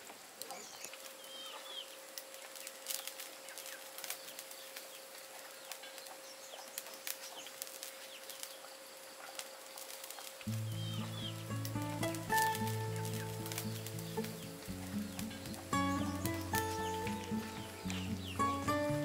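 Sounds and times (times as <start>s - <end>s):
birds chirping: 10.4s - 19.0s.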